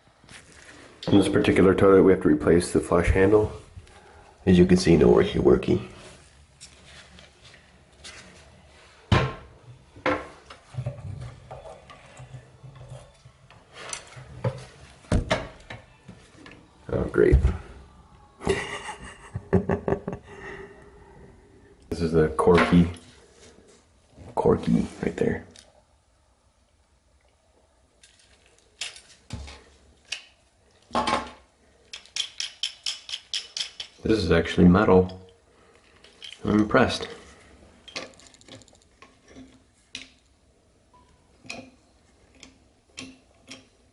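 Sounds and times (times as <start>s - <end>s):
metal and plastic parts clicking: 31.9s - 34.0s, 35.8s - 36.5s.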